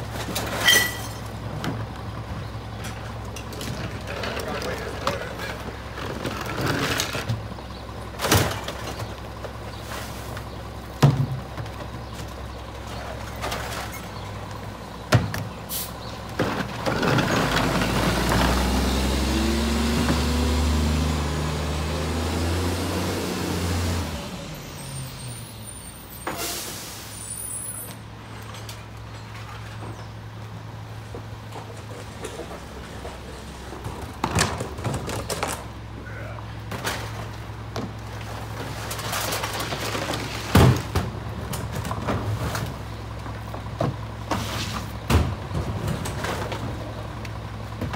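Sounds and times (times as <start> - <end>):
engine revving: 16.8 - 24.6
air brake hiss: 26.2 - 27.7
garbage truck engine idling: 29.7 - 47.9.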